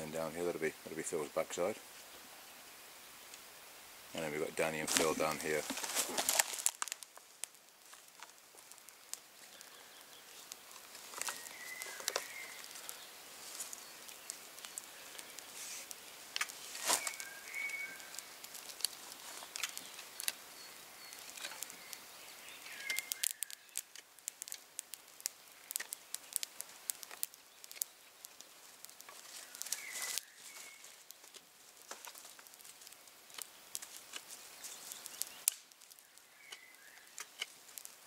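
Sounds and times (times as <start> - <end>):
bird chirps: 9.5 - 13.2, 16.9 - 18.2, 19.4 - 23.9, 29.4 - 31.0, 34.5 - 37.2.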